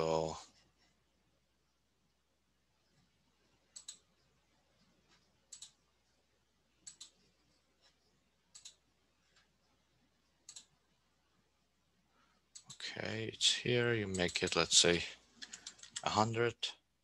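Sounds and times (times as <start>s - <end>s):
computer mouse clicks: 3.7s - 4.2s, 5.0s - 5.8s, 6.8s - 9.6s, 10.4s - 10.8s, 12.5s - 12.8s, 14.1s - 14.6s, 15.4s - 16.1s.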